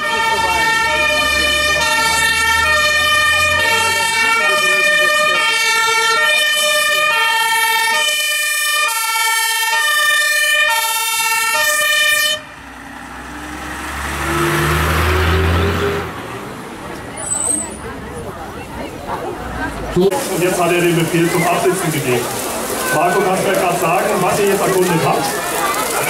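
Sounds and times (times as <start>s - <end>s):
two-tone fire engine siren: 0.0s - 16.2s
diesel truck engine passing: 0.0s - 26.0s.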